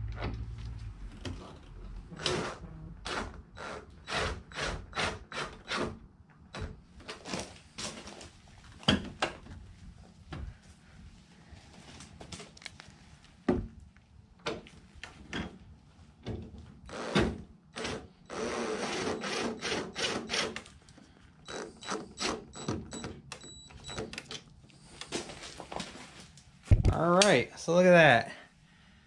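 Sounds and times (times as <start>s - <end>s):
cordless impact driver running: 16.9s - 20.6s.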